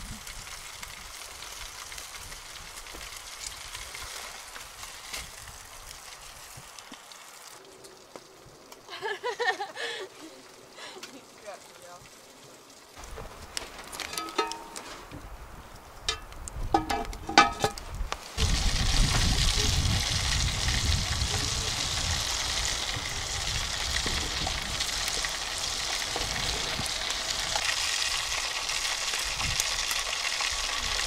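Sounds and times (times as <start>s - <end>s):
food sizzling over campfire: 0.0s - 31.0s
light metallic clinks: 14.0s - 14.9s.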